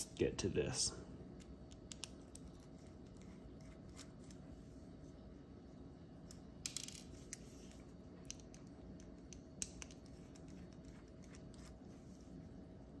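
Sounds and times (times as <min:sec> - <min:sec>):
small parts clicking: 0:01.4 - 0:03.3, 0:06.2 - 0:11.5.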